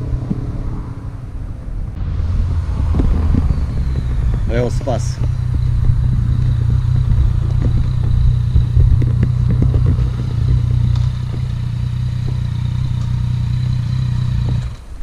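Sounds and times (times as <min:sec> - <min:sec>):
motorcycle engine idling: 0:03.0 - 0:14.8
knocks and rattles: 0:05.1 - 0:14.9.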